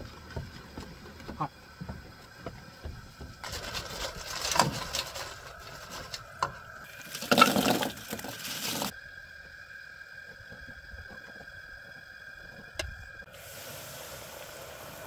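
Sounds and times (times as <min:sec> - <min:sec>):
faint steady hum: 0:00.0 - 0:15.0
hot oil sizzling and crackling: 0:03.1 - 0:09.0, 0:12.7 - 0:15.0
potatoes tumbling into bowl: 0:06.9 - 0:08.9.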